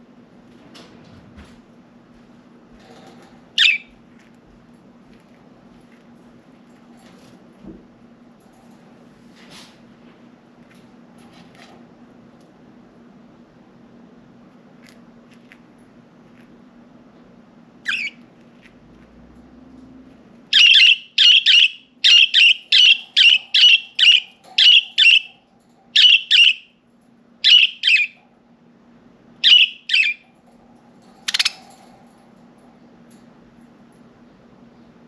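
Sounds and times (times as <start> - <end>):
budgerigar chirping and calling: 3.6 - 3.9, 17.9 - 18.2, 20.5 - 25.4, 26.0 - 26.7, 27.4 - 28.2, 29.4 - 30.2, 31.3 - 31.6.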